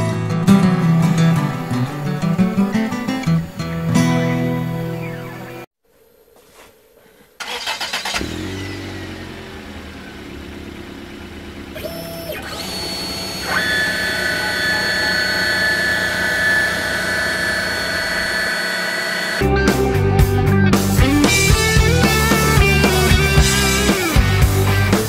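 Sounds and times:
router spindle motor whine: 0:11.7 - 0:19.5.

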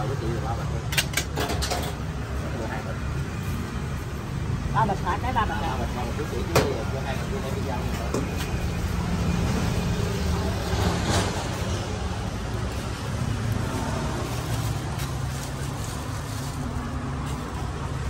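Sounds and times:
street traffic and motorbikes: 0:00.0 - 0:18.0.

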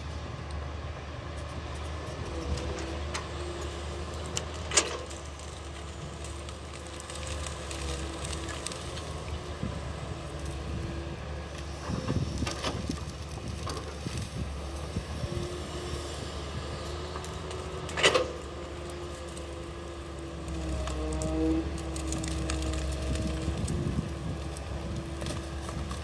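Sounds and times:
excavator engine running: 0:00.0 - 0:26.0
crackling and clicks: 0:02.6 - 0:09.5, 0:17.1 - 0:26.0.

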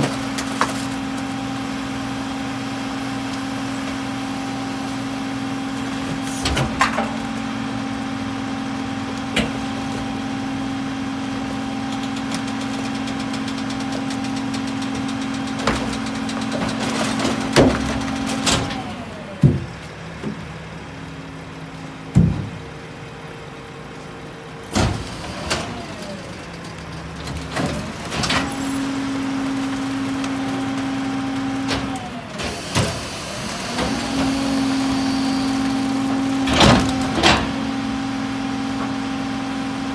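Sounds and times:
garbage truck diesel engine humming: 0:00.0 - 0:39.9
recyclables clanking into hopper: 0:06.1 - 0:07.6, 0:11.9 - 0:20.5, 0:24.7 - 0:37.8.

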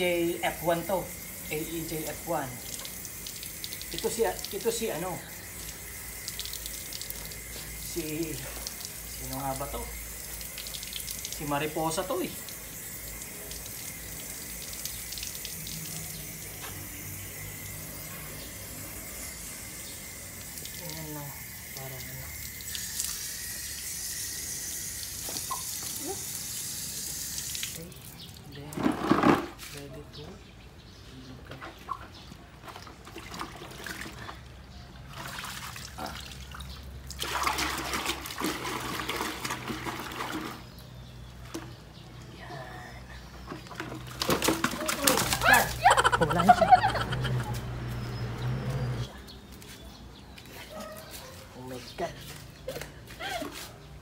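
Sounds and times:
water running from a tap: 0:00.0 - 0:28.4, 0:44.1 - 0:47.2
water splashing in plastic bucket: 0:27.6 - 0:29.6, 0:31.5 - 0:34.4, 0:35.1 - 0:40.8, 0:43.4 - 0:46.1.

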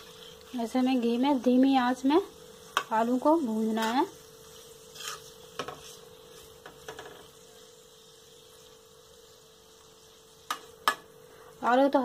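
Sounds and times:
faint steady hum: 0:00.0 - 0:12.0
spoon clinking and scraping pan: 0:03.7 - 0:07.3.

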